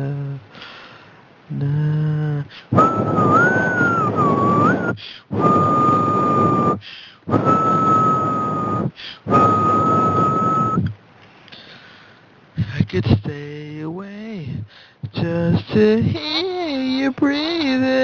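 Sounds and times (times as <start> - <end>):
breath blowing on microphone: 2.5 - 11.0
man whistling long notes: 2.7 - 11.0.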